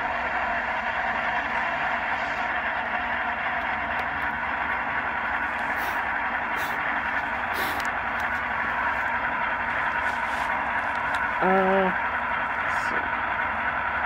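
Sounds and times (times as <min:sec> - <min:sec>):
locomotive idle through small speaker: 0:00.0 - 0:14.0
short air hisses: 0:05.7 - 0:06.8, 0:07.5 - 0:07.9.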